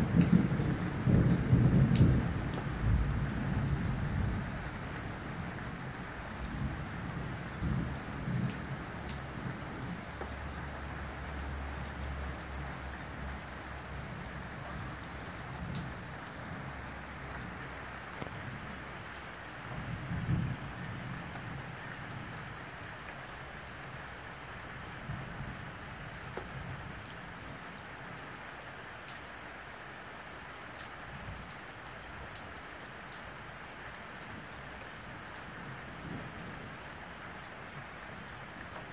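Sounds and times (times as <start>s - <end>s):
low thunder rumbles: 0.0s - 10.0s, 19.8s - 21.7s
rain pattering: 0.0s - 38.9s.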